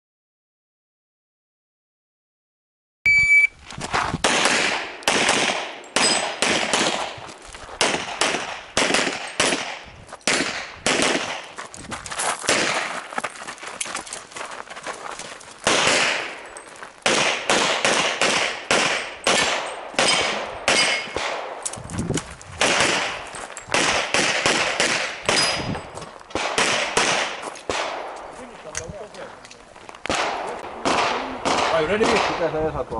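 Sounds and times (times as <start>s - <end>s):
pistol shots: 4.2s - 7.2s, 7.8s - 11.5s, 12.5s - 13.0s, 15.6s - 16.4s, 17.0s - 21.7s, 22.6s - 25.7s, 26.3s - 28.3s, 30.1s - 32.6s.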